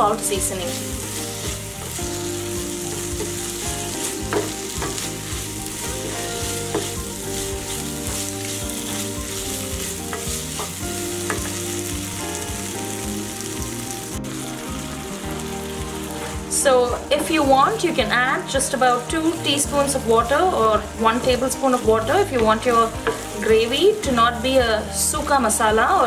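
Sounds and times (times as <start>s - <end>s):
chicken sizzling in a frying pan: 0.0s - 26.0s
stirring strokes in a pan: 0.1s - 16.5s, 17.6s - 24.9s.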